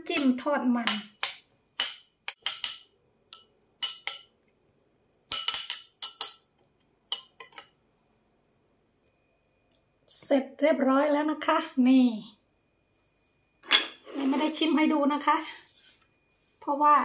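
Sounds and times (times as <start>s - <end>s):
metal spoon clinking glass bowl: 1.8s - 4.3s, 5.3s - 6.5s, 7.1s - 7.8s.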